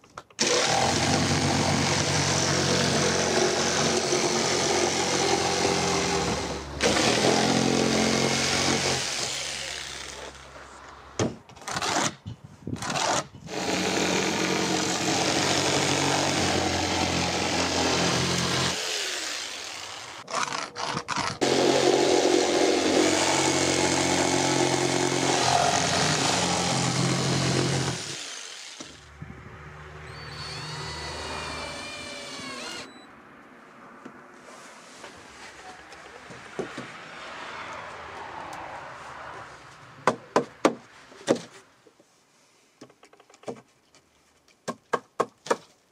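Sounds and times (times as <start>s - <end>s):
electric jigsaw cutting wood: 0.4s - 10.3s, 12.8s - 29.1s, 30.1s - 32.9s
cordless drill driving screw: 30.1s - 33.0s.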